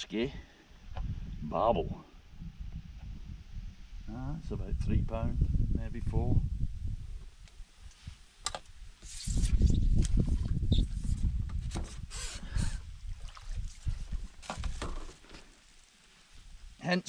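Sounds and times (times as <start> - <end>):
water splashing and sloshing: 9.3 - 16.4.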